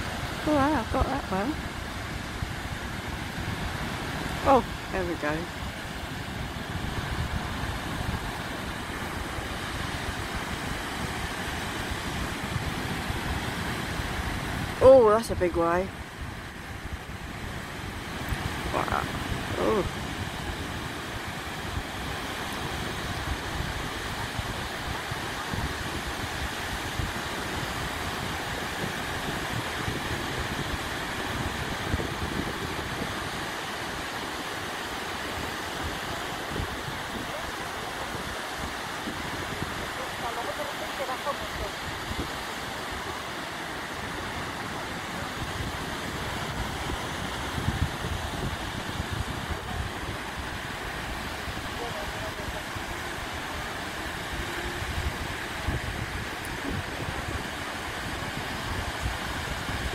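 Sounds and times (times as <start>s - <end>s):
ocean waves breaking: 0.0s - 59.9s
wind gusting on microphone: 0.0s - 59.9s.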